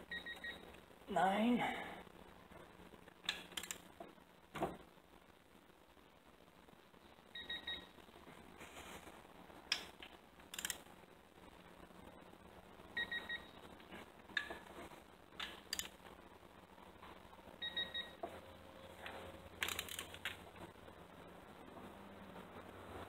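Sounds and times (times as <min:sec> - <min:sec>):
ratchet and socket clicking: 0:10.5 - 0:10.8, 0:19.6 - 0:20.2.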